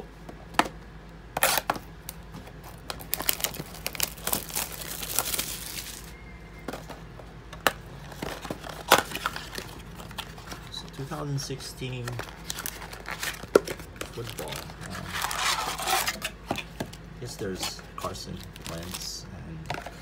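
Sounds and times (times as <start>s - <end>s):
plastic wrap tearing and crinkling: 1.4s - 1.7s, 2.6s - 6.2s, 12.0s - 16.2s, 18.3s - 19.1s.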